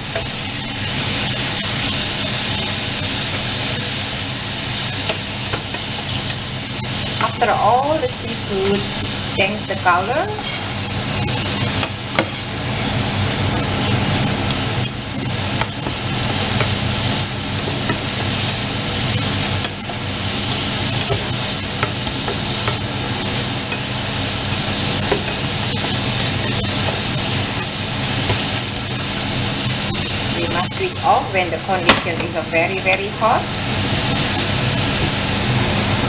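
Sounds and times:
seafood sizzling in a frying pan: 0:00.0 - 0:36.0
steady low hum: 0:00.0 - 0:36.0
spatula scraping and tapping pan: 0:13.8 - 0:30.8.

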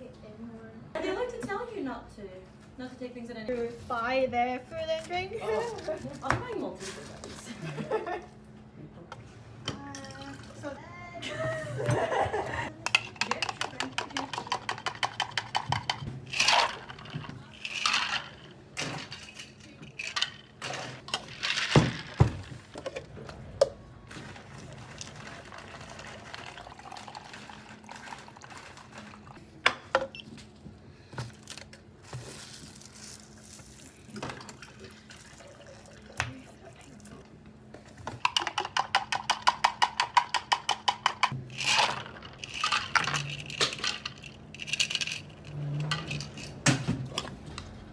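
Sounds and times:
plastic shaker cup rattling: 0:12.8 - 0:18.4, 0:38.2 - 0:46.6
liquid pouring: 0:24.7 - 0:29.4, 0:34.0 - 0:37.1.

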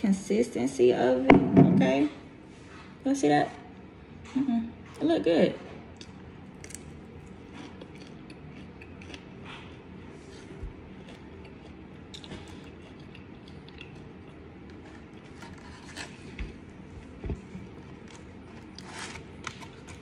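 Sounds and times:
chewing crispy food: 0:05.8 - 0:20.0.

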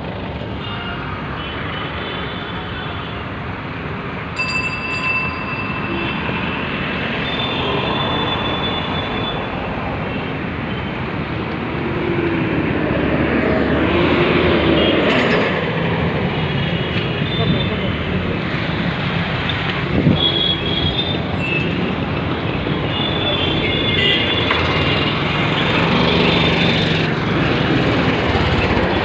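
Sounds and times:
dense city traffic: 0:00.0 - 0:29.0
sharp high ring: 0:04.4 - 0:06.6.

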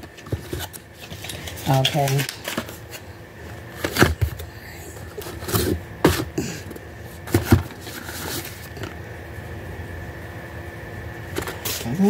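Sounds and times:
cardboard knocking and scraping: 0:07.2 - 0:08.5.

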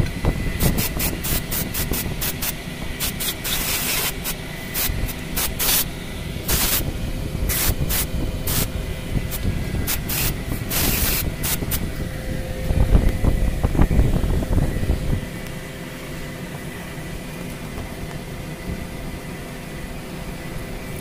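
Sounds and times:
steady background hum: 0:00.0 - 0:21.0
aerosol spray hissing: 0:00.6 - 0:11.9.

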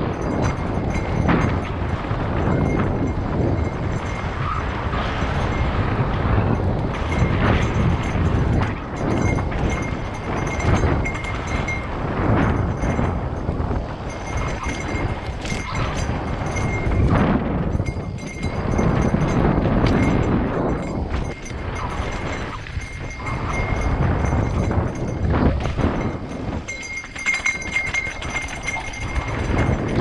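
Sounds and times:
bike rattling and knocking: 0:00.0 - 0:30.0
bike tyres rumbling over rock: 0:00.0 - 0:30.0
wind buffeting microphone: 0:00.0 - 0:30.0.

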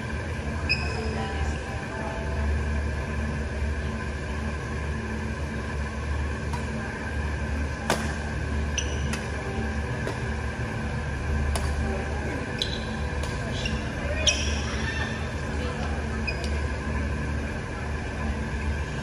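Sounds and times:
low mechanical hum: 0:00.0 - 0:19.0
racquet hitting shuttlecock: 0:07.9 - 0:08.2, 0:10.0 - 0:10.3, 0:11.5 - 0:11.8
shoes squeaking on court: 0:08.7 - 0:09.3, 0:12.6 - 0:15.1, 0:16.2 - 0:16.7.

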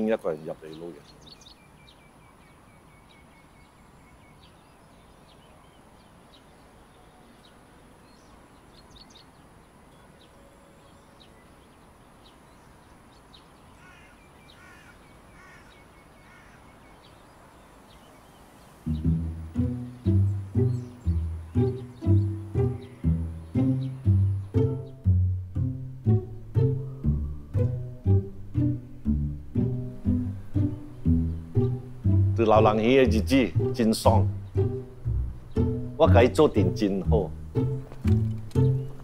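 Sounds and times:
birds chirping: 0:00.0 - 0:39.0
loud music: 0:18.9 - 0:32.5.

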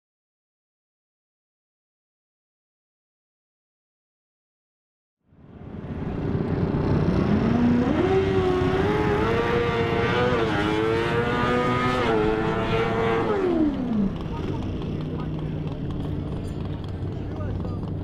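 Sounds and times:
race car engine accelerating: 0:05.9 - 0:18.0.

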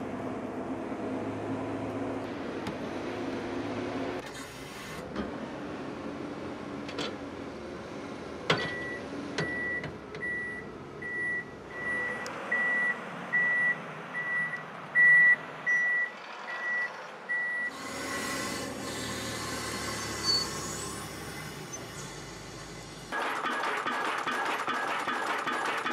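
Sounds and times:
machine running: 0:22.9 - 0:25.9.

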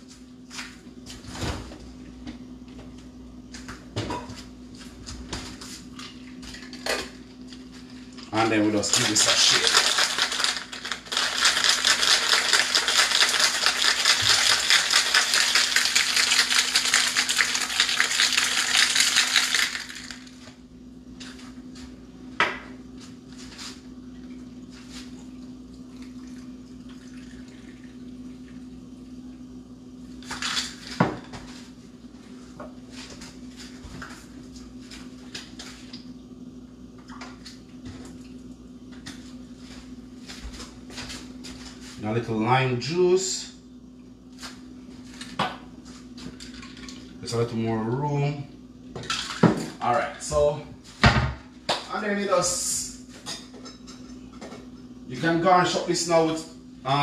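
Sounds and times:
steady low hum: 0:00.0 - 0:57.0
ice rattling in cocktail shaker: 0:08.8 - 0:20.4.

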